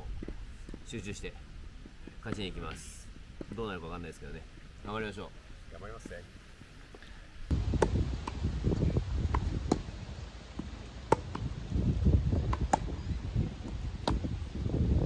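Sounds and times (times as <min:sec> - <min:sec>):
tennis balls struck with rackets: 0:02.0 - 0:03.8, 0:07.7 - 0:11.7, 0:12.3 - 0:14.4
wind rumble on microphone: 0:07.4 - 0:15.0.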